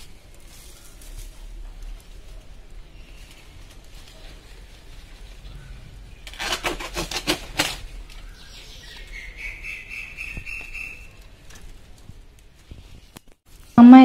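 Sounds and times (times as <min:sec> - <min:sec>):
leaves rustling and crackling: 0:00.0 - 0:13.8.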